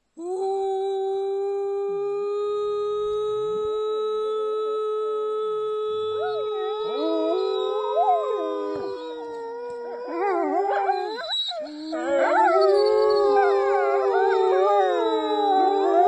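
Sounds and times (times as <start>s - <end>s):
woman howling: 0.2s - 16.0s
wolves howling: 6.0s - 16.0s.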